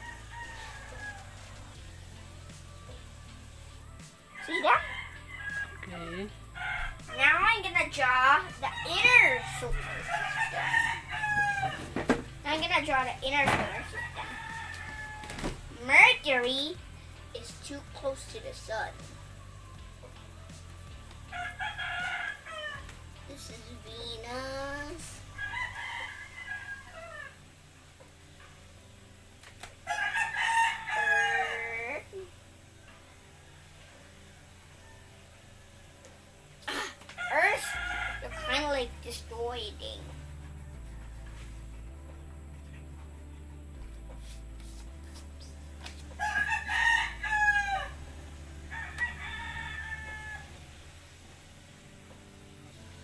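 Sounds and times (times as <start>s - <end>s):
rooster crowing: 0.0s - 2.3s, 4.1s - 7.2s, 8.2s - 12.0s, 13.7s - 15.6s, 21.2s - 23.0s, 25.4s - 27.5s, 29.8s - 32.2s, 33.2s - 36.1s, 37.2s - 38.6s, 46.2s - 50.8s.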